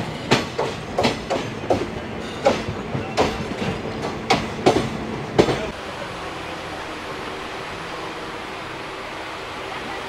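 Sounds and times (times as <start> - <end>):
train wheels clattering over joints: 0.0 - 5.7.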